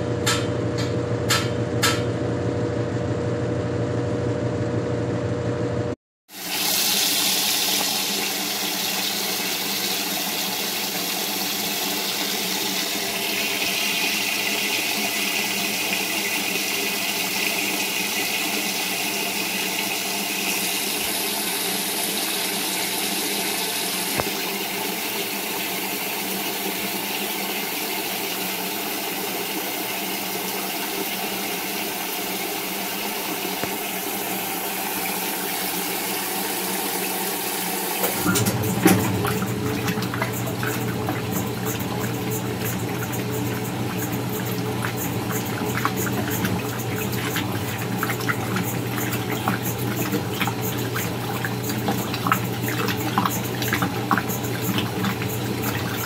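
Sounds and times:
low motor hum: 0.0s - 6.0s, 38.1s - 56.0s
washing machine water churning: 6.3s - 56.0s.

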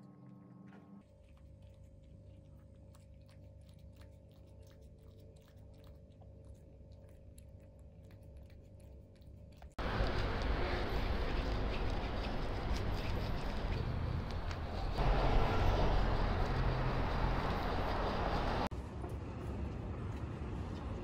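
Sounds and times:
cat licking and chewing: 1.0s - 21.0s
street noise: 9.8s - 21.0s.

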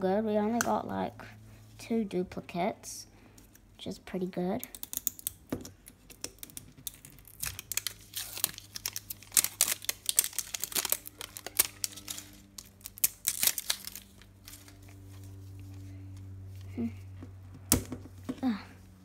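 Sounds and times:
plastic wrap crinkling and tearing: 4.7s - 15.4s.

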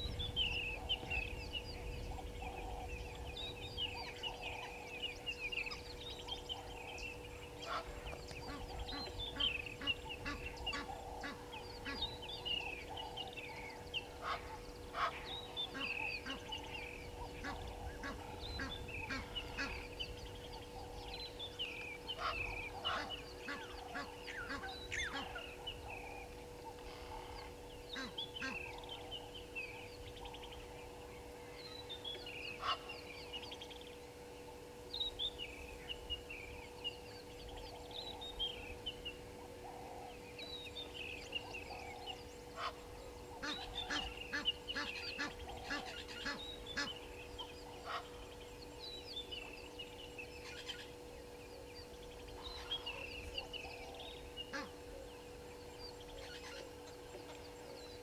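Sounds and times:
steady low hum: 0.0s - 58.0s
geese calling: 2.0s - 30.2s, 31.8s - 33.4s, 37.5s - 48.6s, 52.2s - 55.4s.

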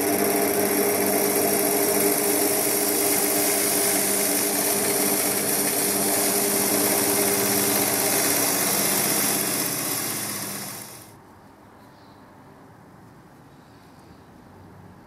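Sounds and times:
tool cutting spinning wood: 0.0s - 11.1s
wood lathe motor hum: 0.0s - 11.1s.

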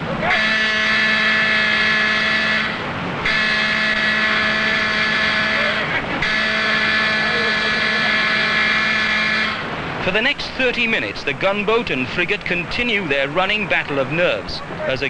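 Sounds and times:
rushing sea wash: 0.0s - 15.0s
ship's warning siren blasts: 0.1s - 10.0s.

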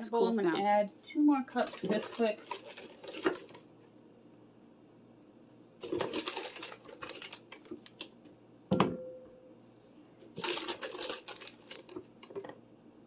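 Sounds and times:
metal cup knocking on glass bowl: 8.7s - 9.4s.

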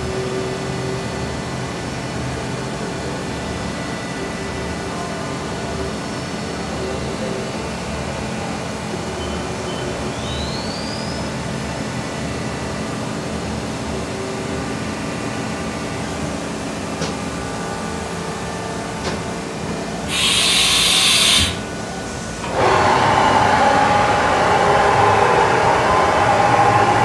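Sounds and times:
machining center motor whine: 8.5s - 27.0s
rising whistle: 9.2s - 11.3s, 20.1s - 21.6s, 22.6s - 27.0s
hiss of air: 20.1s - 21.6s
rushing noise: 20.1s - 21.7s, 22.4s - 27.0s.

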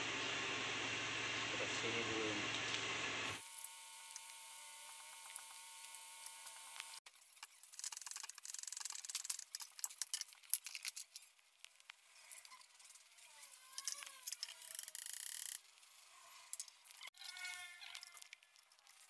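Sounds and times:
metal parts clicking: 7.2s - 11.4s, 13.6s - 15.7s, 16.4s - 19.0s.

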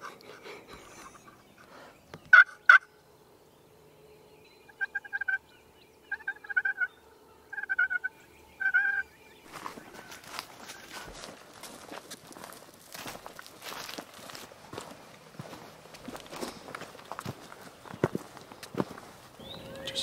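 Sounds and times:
turkey gobbling: 2.3s - 2.9s, 4.7s - 5.4s, 6.1s - 9.1s.

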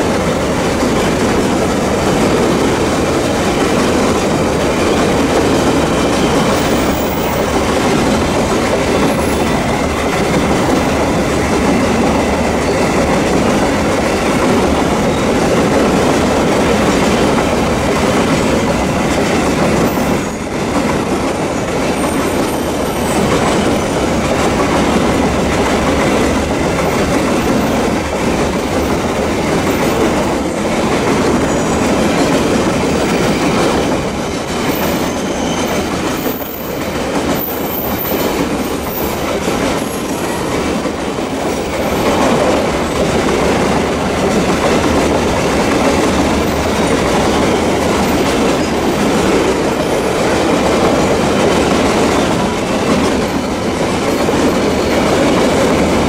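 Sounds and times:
freight train rumbling past: 0.0s - 56.0s
high wheel squeals: 31.3s - 32.2s, 34.6s - 36.8s.

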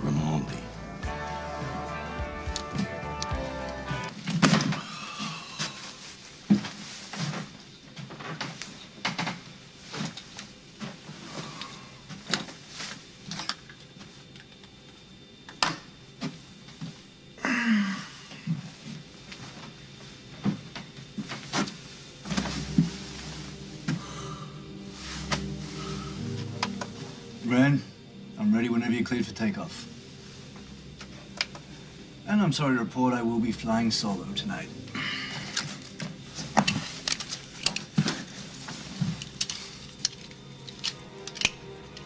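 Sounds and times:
low hum: 15.8s - 42.0s.

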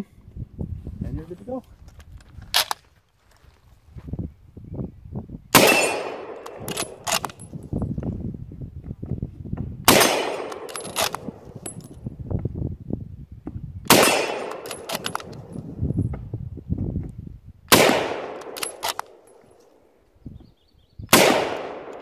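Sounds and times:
rifle shots: 5.5s - 7.4s, 9.9s - 11.5s, 13.9s - 15.6s, 17.7s - 19.3s, 21.1s - 22.0s
rifle bolt clicking: 6.3s - 7.4s, 10.4s - 11.7s, 13.9s - 15.5s, 17.8s - 19.4s.

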